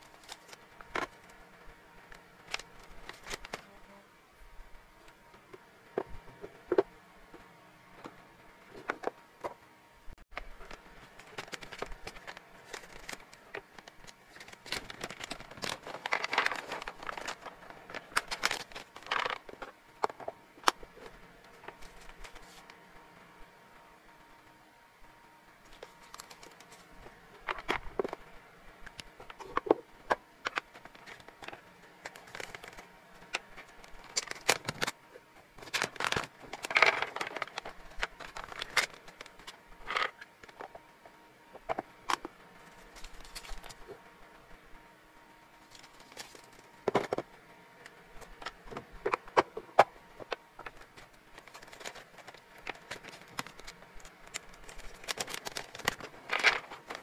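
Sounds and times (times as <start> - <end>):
plastic bag crinkling: 10.6 - 19.6, 50.6 - 57.0.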